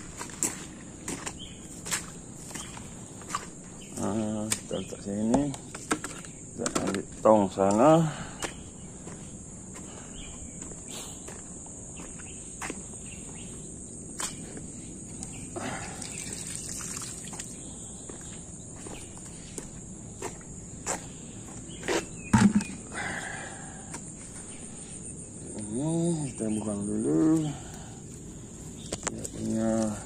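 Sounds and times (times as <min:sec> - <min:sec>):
footsteps: 0:00.0 - 0:04.8, 0:08.4 - 0:13.6, 0:17.3 - 0:22.8
insects chirring: 0:00.0 - 0:30.0
handling knocks and rustles: 0:04.5 - 0:07.1, 0:21.9 - 0:22.8
loud thump: 0:22.3 - 0:22.8.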